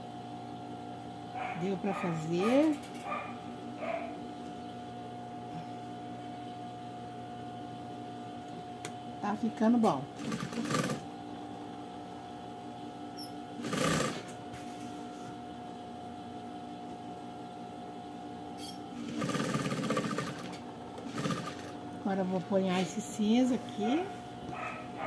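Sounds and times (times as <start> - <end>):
sewing machine stitching: 10.2 - 11.0, 13.6 - 14.3, 19.0 - 21.7.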